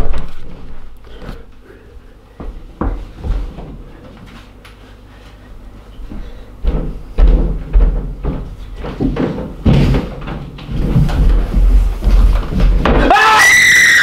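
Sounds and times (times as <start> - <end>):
heavy thumps and knocks: 6.1 - 13.1.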